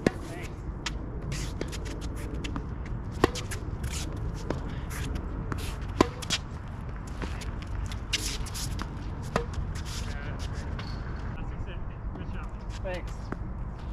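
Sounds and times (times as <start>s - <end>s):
tennis ball hitting racket: 0.0s - 10.1s
shoes scuffing on court: 0.0s - 11.3s
tennis ball bouncing: 1.6s - 9.7s.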